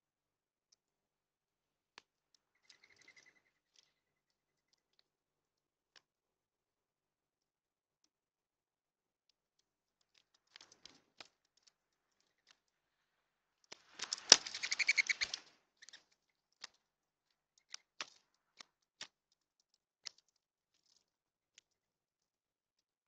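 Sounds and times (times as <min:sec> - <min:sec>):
birds pecking seed: 0:02.4 - 0:05.0, 0:10.0 - 0:13.0, 0:13.6 - 0:21.8
wings flapping: 0:13.7 - 0:16.8.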